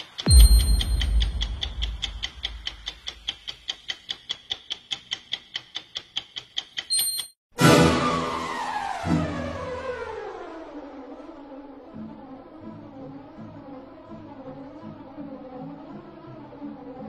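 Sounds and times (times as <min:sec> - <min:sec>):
clock ticking fast: 0:00.0 - 0:07.0
loud sound falling in pitch: 0:07.6 - 0:11.3.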